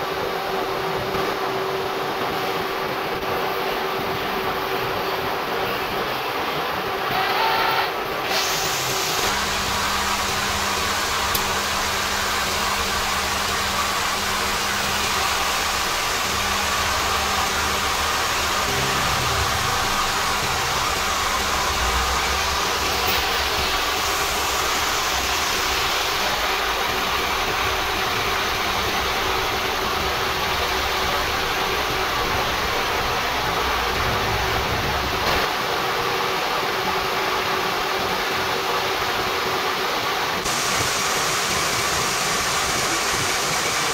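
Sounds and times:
gear-cutting machine running: 0:06.9 - 0:35.5
faint hum: 0:10.4 - 0:35.2
low rumble: 0:17.8 - 0:24.1.

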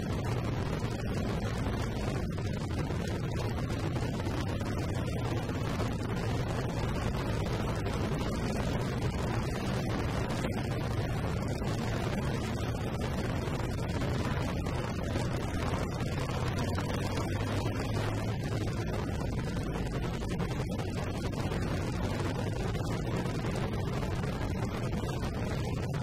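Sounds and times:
motorcycle engine rumble: 0:00.0 - 0:26.0
wind buffeting microphone: 0:00.0 - 0:26.0.

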